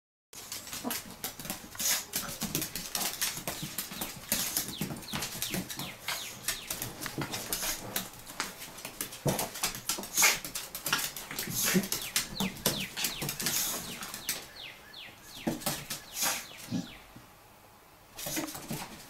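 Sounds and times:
claws scrabbling on wooden floor: 0.4 - 14.6.

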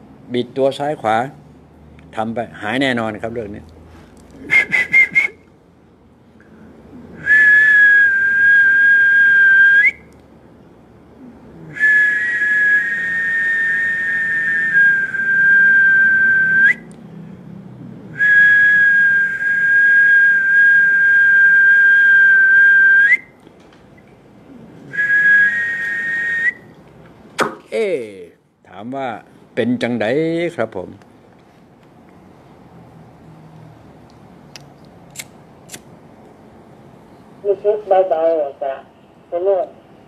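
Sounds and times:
person whistling long notes: 4.5 - 5.4, 7.2 - 10.1, 11.7 - 16.9, 18.2 - 23.3, 24.9 - 26.7.

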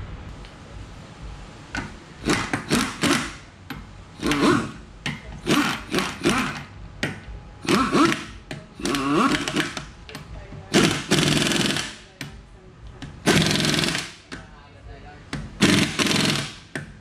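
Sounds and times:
impact wrench bursts: 1.8 - 3.5, 4.1 - 6.7, 7.6 - 9.9, 10.7 - 12.1, 13.2 - 14.4, 15.5 - 16.9.

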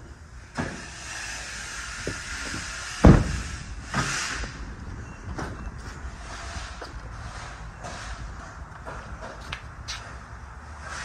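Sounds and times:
vehicle door thump: 2.1 - 3.6.

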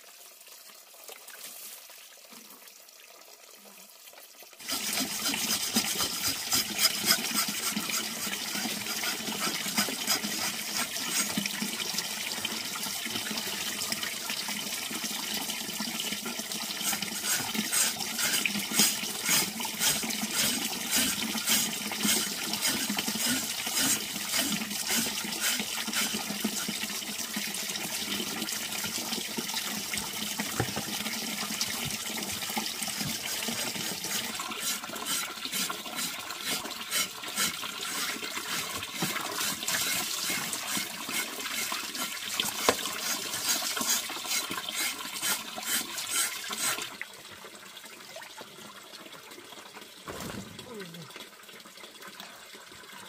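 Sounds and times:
knife scraping wet skin: 4.7 - 11.4, 16.9 - 26.2, 33.9 - 46.8.

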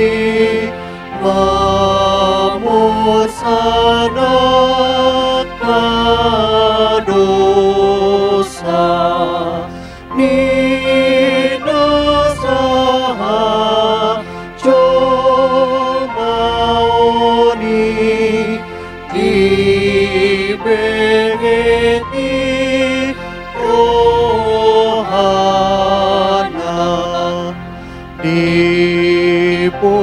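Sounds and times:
woman and man singing a hymn: 0.0 - 30.0.

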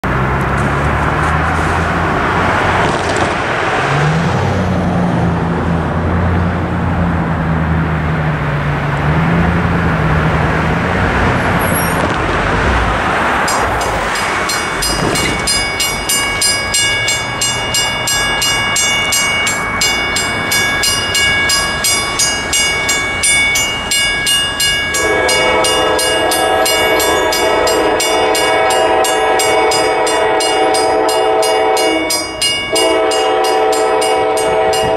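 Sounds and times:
road traffic hum: 0.0 - 34.9
crossing bell ringing: 13.3 - 34.9
locomotive horn chord: 24.8 - 34.9.

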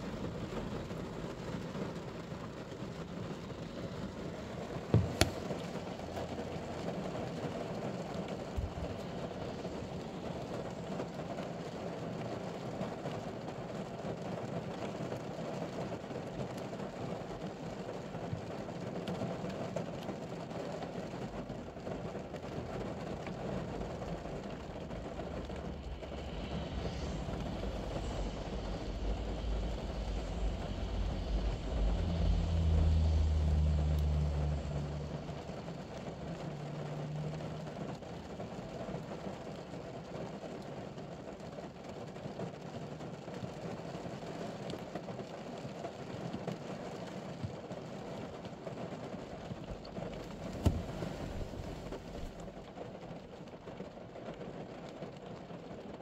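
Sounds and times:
rain on vehicle roof: 0.0 - 56.0
low rumble: 22.8 - 38.7, 49.4 - 52.6.

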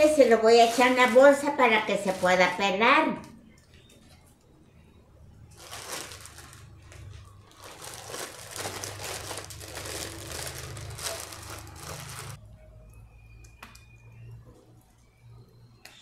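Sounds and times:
plastic bag crinkling: 0.0 - 2.8, 5.5 - 12.4.

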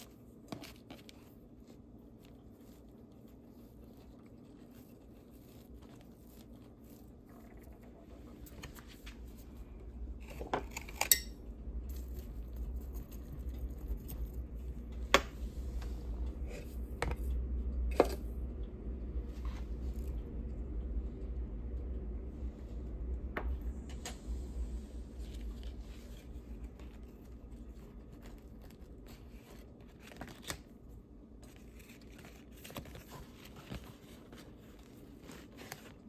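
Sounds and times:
low handling rumble: 11.4 - 29.1.

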